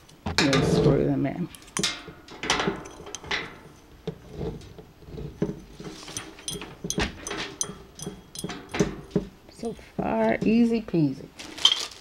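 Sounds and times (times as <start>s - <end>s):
metal parts clicking and scraping: 1.5s - 9.2s.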